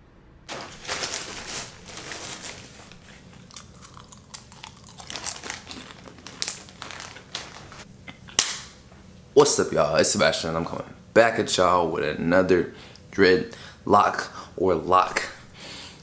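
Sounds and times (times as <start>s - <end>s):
person chewing crunchy food: 3.0s - 7.8s.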